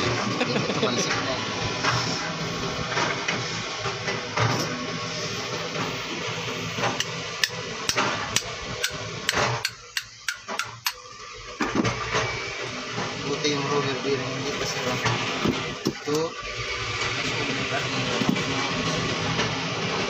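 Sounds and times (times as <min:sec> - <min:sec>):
hammer striking metal: 0:07.0 - 0:11.0.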